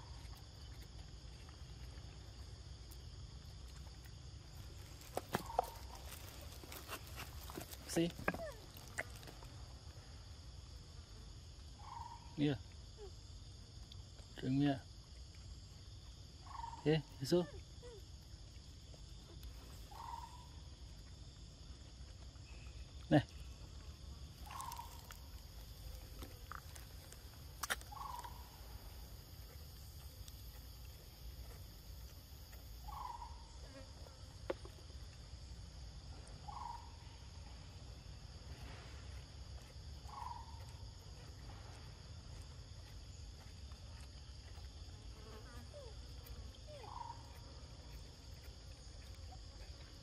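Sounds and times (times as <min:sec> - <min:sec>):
insects droning: 0:00.0 - 0:50.0.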